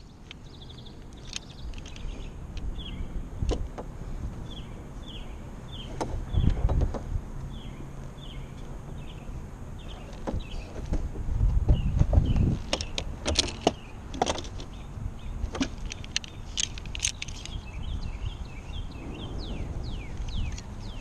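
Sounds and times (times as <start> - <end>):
birds chirping: 0.0 - 21.0
wind buffeting microphone: 0.0 - 21.0
metal hardware clicking: 15.6 - 17.6.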